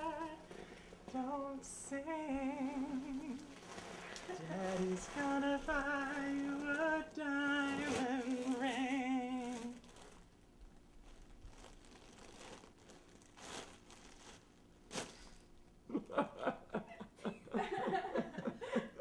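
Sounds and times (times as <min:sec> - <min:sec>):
soft rustles: 0:00.1 - 0:15.6
man laughing in short bursts: 0:15.9 - 0:19.0.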